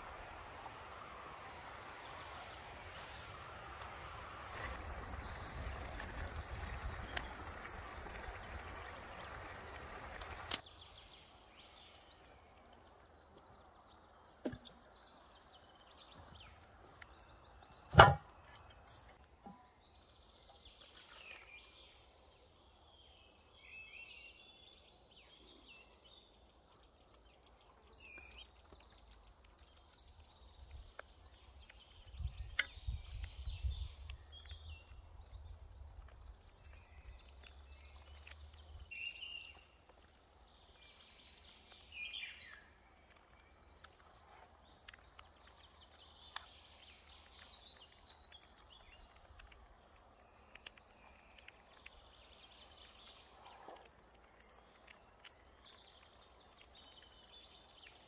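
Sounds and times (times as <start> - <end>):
pot simmering with hiss: 0.0 - 58.0
sharp knock: 17.9 - 18.3.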